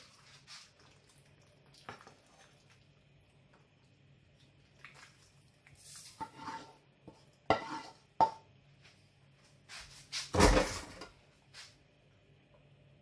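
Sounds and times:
wooden spoon scraping frying pan: 5.9 - 8.4
spoon knocking on pan: 7.5 - 8.5.

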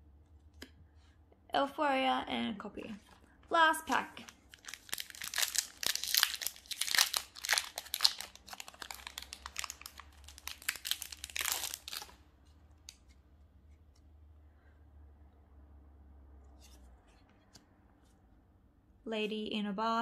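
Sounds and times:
foil wrapper crinkling and tearing: 4.2 - 12.2.

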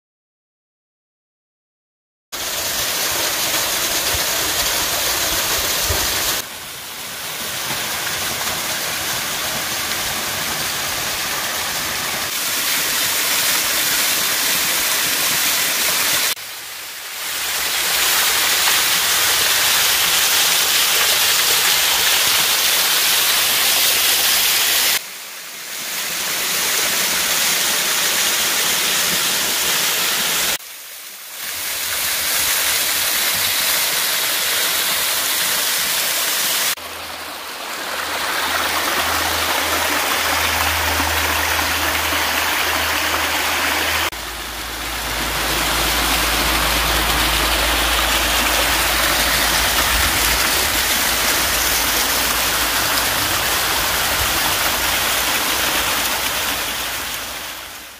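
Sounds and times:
water splashing over rocks: 2.4 - 25.0, 31.4 - 57.9
low rumble: 38.9 - 55.1.

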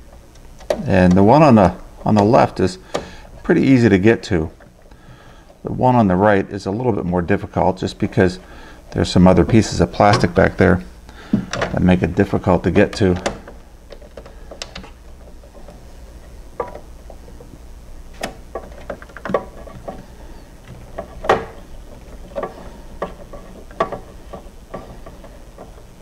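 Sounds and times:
screw and plastic parts clicking: 12.9 - 17.5.

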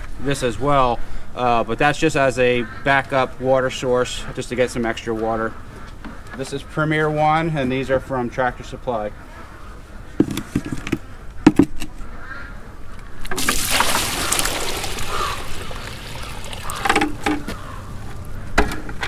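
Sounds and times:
water pouring and splashing: 13.2 - 17.6
plastic bucket knocking on block: 16.8 - 17.6.

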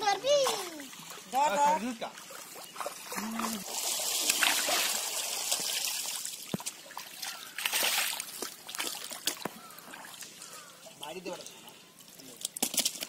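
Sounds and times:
fish splashing in muddy water: 2.2 - 10.7.

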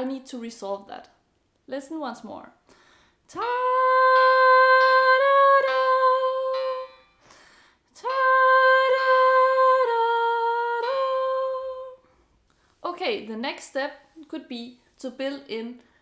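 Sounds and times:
woman singing long held notes: 3.3 - 7.1, 8.0 - 12.1.

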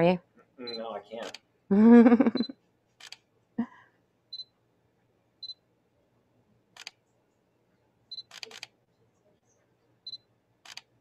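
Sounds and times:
camera shutter: 3.0 - 3.2, 6.8 - 7.0, 8.2 - 8.7, 10.6 - 10.9
camera beeping: 8.1 - 8.7, 10.1 - 10.9.

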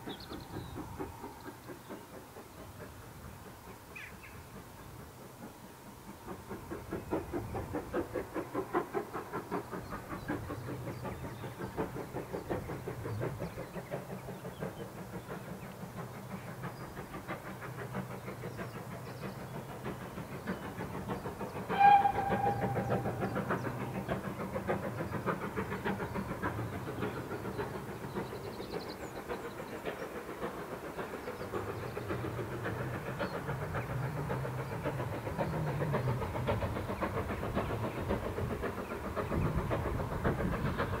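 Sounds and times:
steam locomotive exhaust beating: 0.0 - 41.0
steam whistle blast: 21.7 - 23.1.

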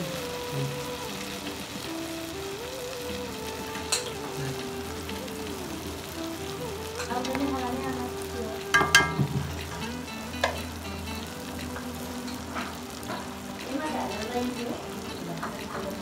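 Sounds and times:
batter sizzling in hot oil: 0.0 - 16.0
metal spatula clinking on pan: 8.7 - 9.3.

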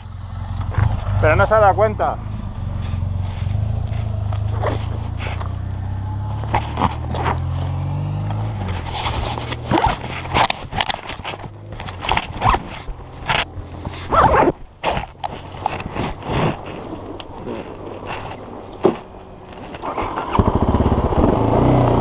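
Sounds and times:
motorcycle engine running: 0.0 - 22.0
camera rubbing against jacket: 2.2 - 7.6, 8.4 - 20.4.

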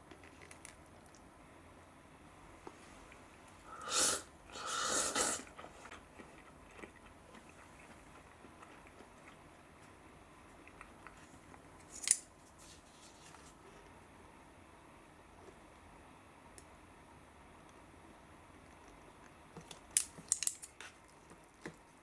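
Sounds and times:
faint chewing: 0.0 - 1.3, 5.3 - 14.0, 18.5 - 22.0
person slurping noodles: 3.7 - 5.8.

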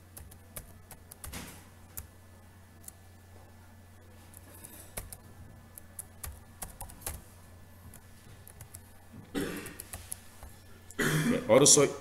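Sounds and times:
computer keyboard typing: 0.0 - 2.1, 4.3 - 7.2, 7.9 - 9.0, 9.6 - 10.6.

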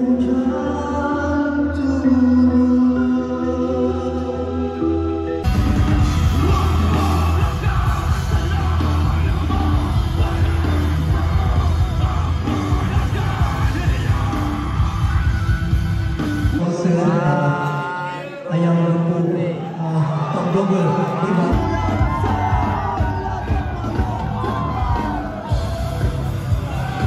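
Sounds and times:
live rock band playing: 5.4 - 16.7, 21.5 - 27.0
singer shouting: 5.5 - 15.9, 16.5 - 27.0.

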